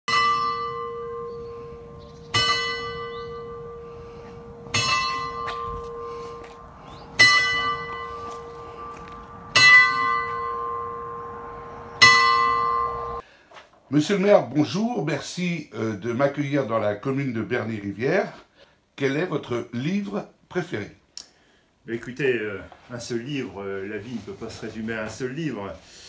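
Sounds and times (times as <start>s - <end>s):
tower bell striking: 0.1s - 13.2s.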